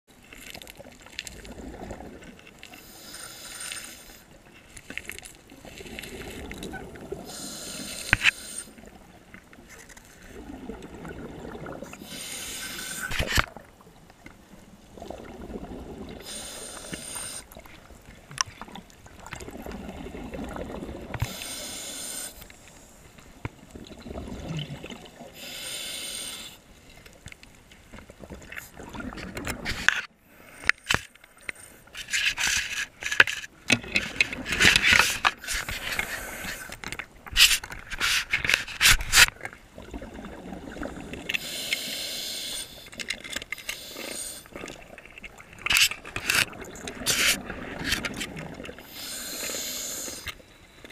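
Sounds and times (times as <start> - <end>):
exhaled air bubbling: 0.8 - 2.4, 10.3 - 14.0, 14.6 - 21.9, 23.6 - 25.5, 28.1 - 29.9, 39.7 - 41.4, 43.9 - 50.2
regulator inhale hiss: 2.7 - 4.2, 7.3 - 8.8, 12.0 - 13.3, 16.2 - 17.6, 21.2 - 23.1, 25.4 - 26.7, 35.4 - 36.8, 41.3 - 43.0, 43.6 - 44.6, 48.8 - 50.4.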